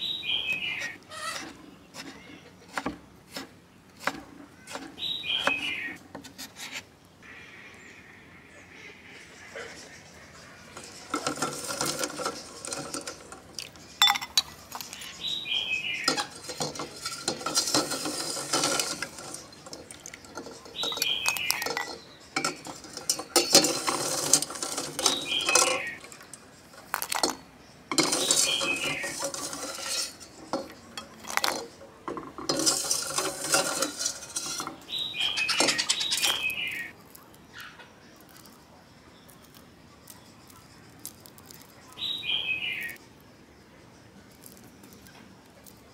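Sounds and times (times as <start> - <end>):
metal ladle scraping pot: 0.5 - 6.8, 9.8 - 15.3, 15.9 - 36.9
metal on metal squeal: 27.9 - 31.7, 32.5 - 36.9.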